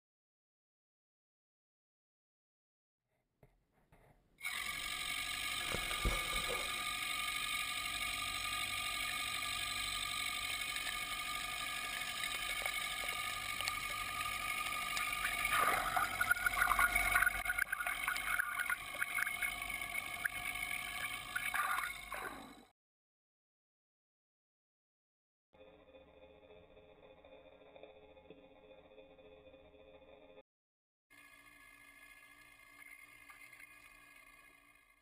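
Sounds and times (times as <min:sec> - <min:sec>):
mixer mechanical hum: 0:04.4 - 0:22.7, 0:25.6 - 0:30.4, 0:31.1 - 0:35.0
water rushing and gurgling: 0:15.0 - 0:19.5
water splashing: 0:15.0 - 0:19.5.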